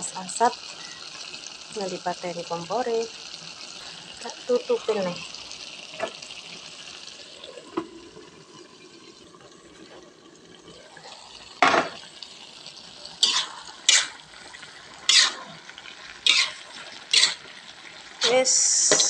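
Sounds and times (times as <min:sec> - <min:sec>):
food sizzling in a wok: 0:00.0 - 0:19.0
spatula scraping a wok: 0:13.2 - 0:14.2, 0:15.0 - 0:15.6, 0:16.2 - 0:17.5.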